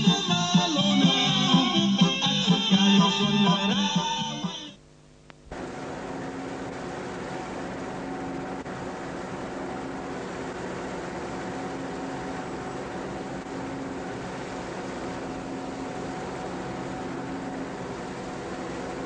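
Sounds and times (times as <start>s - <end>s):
music: 0.0s - 4.8s
engine humming: 0.0s - 19.0s.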